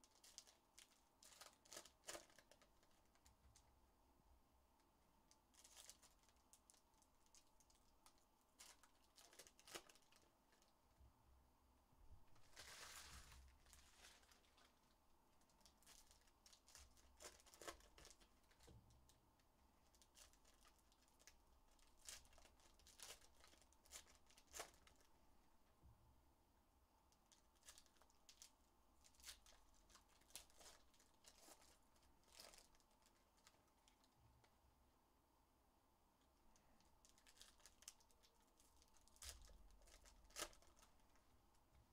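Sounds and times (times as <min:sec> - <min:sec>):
foil wrappers crinkling and tearing: 0:00.0 - 0:03.6, 0:05.5 - 0:10.7, 0:12.4 - 0:18.7, 0:19.9 - 0:25.1, 0:27.3 - 0:34.1, 0:37.0 - 0:41.2.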